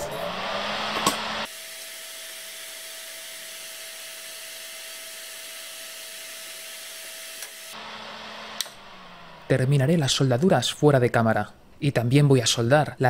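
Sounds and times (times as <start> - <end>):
extractor fan whooshing: 0.0 - 1.5.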